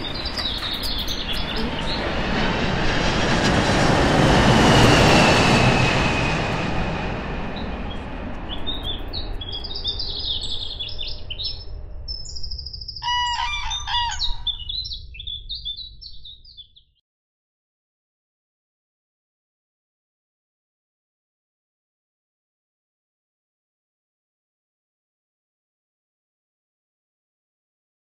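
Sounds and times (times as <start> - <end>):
bird calling: 0.0 - 2.5, 8.5 - 15.8
small birds chirping: 0.0 - 2.7, 7.5 - 17.0
broad rushing noise: 0.0 - 9.6.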